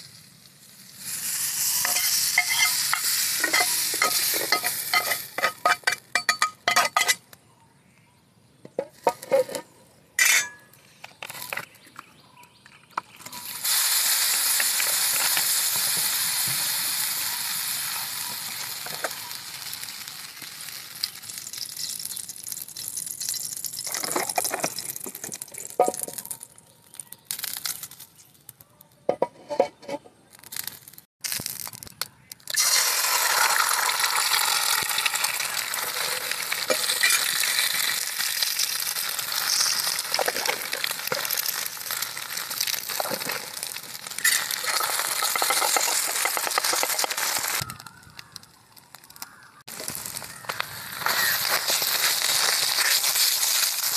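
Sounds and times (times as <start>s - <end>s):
hot oil sizzling: 0.0s - 7.2s, 13.1s - 28.3s, 30.4s - 53.9s
metal spatula scraping frying pan: 1.7s - 7.2s, 9.0s - 10.7s, 29.1s - 30.1s.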